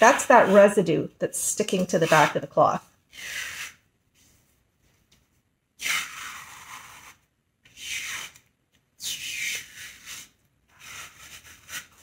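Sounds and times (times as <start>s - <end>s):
iron scraping across cloth: 0.0s - 2.8s.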